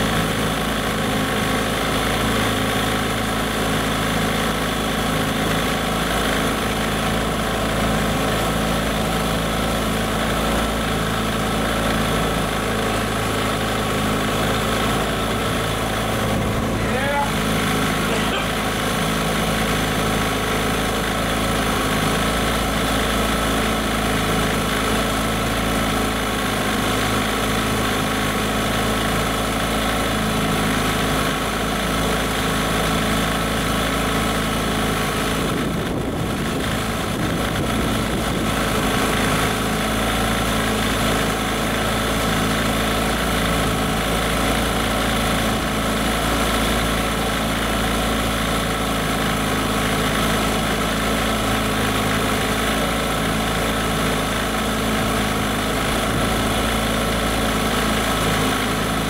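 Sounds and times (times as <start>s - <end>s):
outboard motor running: 0.0s - 59.0s
water churning: 12.2s - 25.5s.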